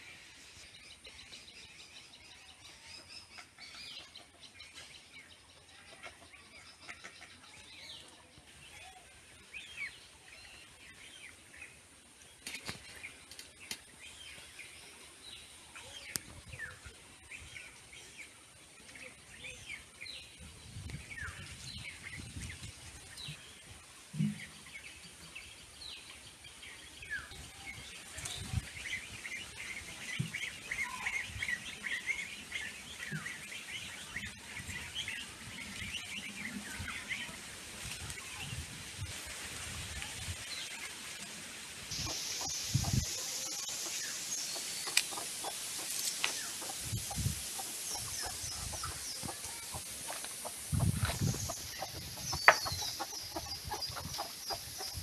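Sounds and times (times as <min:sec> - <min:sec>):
birds chirping: 0:41.9 - 0:55.0.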